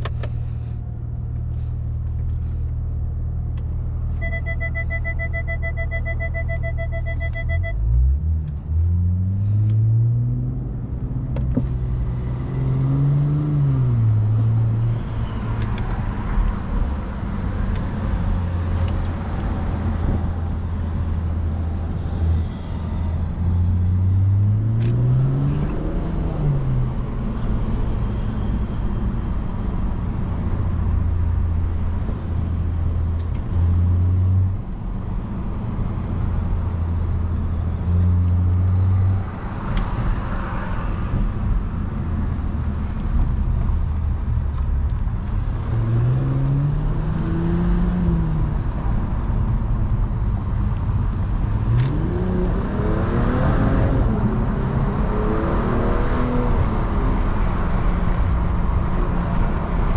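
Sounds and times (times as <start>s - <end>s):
car engine drone: 0.0s - 59.9s
road and tyre noise: 0.0s - 59.9s
pulsing electronic beep: 4.2s - 7.8s.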